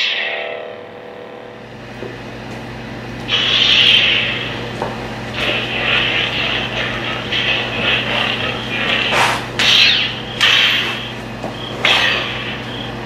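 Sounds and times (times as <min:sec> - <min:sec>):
lightsaber hum: 0:00.0 - 0:13.0
lightsaber swing swooshes: 0:03.3 - 0:04.6, 0:09.1 - 0:11.1.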